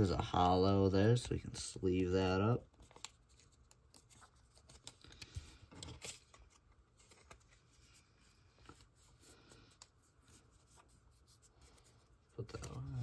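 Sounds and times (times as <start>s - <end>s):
card rustling and tapping: 2.7s - 13.0s.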